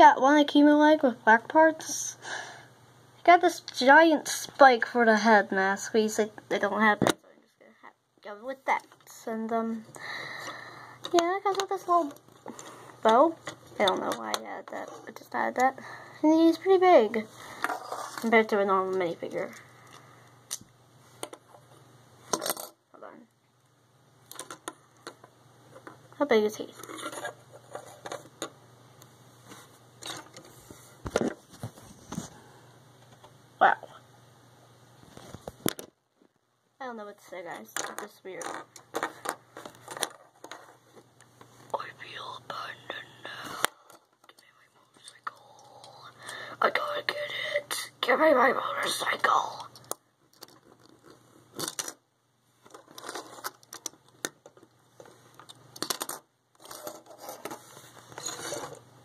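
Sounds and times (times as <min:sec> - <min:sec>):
plastic pieces clicking and rustling: 0:24.3 - 0:26.0, 0:37.6 - 0:41.0, 0:49.5 - 0:52.0, 0:52.6 - 0:58.8.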